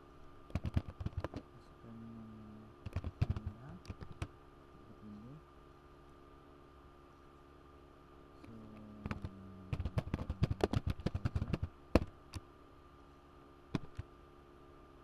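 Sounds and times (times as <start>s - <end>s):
computer keyboard typing: 0.5s - 1.4s, 2.8s - 4.3s, 9.0s - 12.1s.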